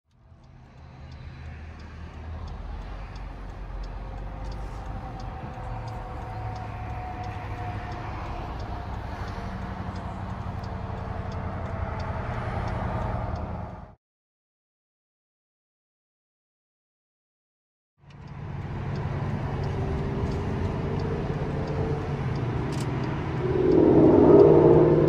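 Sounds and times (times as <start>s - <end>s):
light regular ticking: 0.1s - 13.5s, 18.0s - 24.8s
diesel locomotive rumbling: 18.3s - 25.0s.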